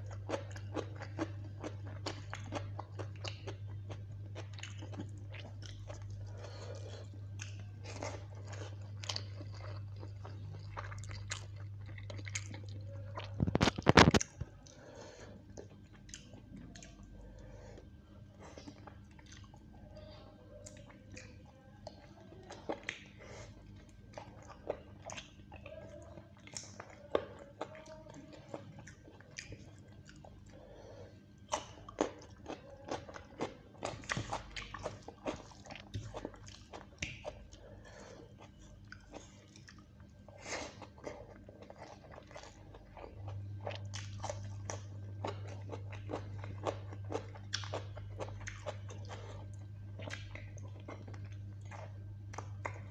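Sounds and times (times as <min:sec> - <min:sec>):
chewing and biting food: 0:00.0 - 0:19.8, 0:20.6 - 0:52.9
steady low hum: 0:00.0 - 0:52.9.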